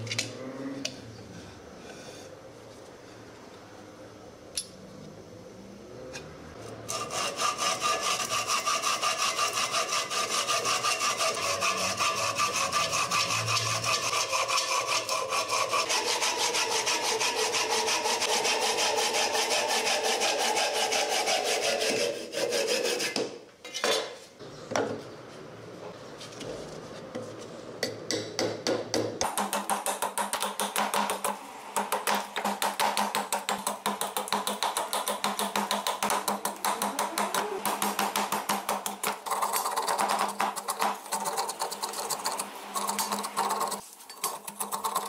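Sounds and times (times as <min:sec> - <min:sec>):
saw cutting wood: 0:06.9 - 0:23.2.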